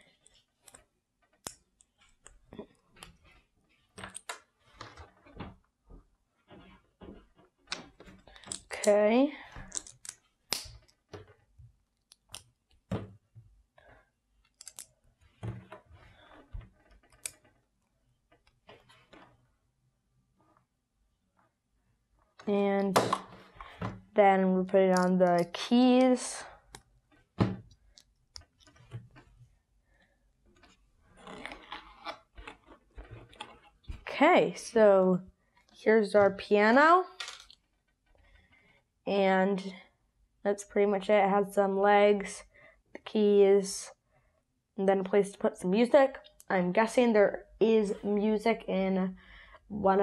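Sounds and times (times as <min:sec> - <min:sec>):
plastic bricks clicking: 0:09.6 - 0:11.0.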